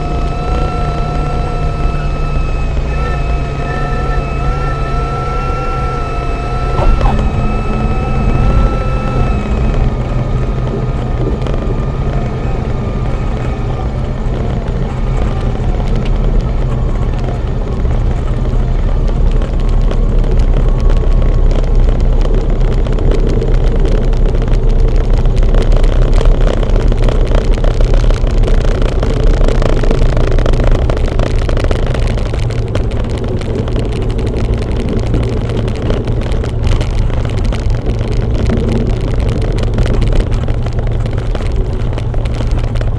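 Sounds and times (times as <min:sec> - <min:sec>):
propeller plane engine in cabin: 0:00.0 - 0:42.9
thin high tone: 0:01.9 - 0:10.0.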